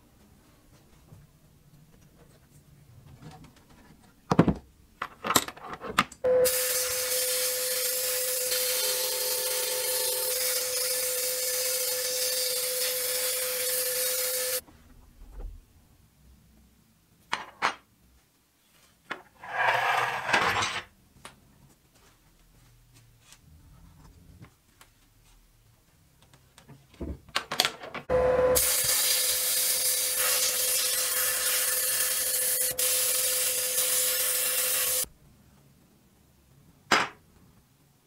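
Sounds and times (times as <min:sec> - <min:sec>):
sandblasting gun hissing: 0:06.4 - 0:14.6, 0:28.6 - 0:35.1.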